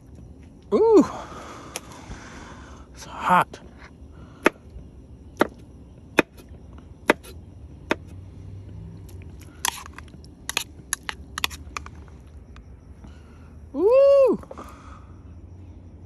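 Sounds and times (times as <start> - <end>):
knife chopping on wooden board: 7.1 - 7.3
spoon stirring in bowl: 9.6 - 11.9.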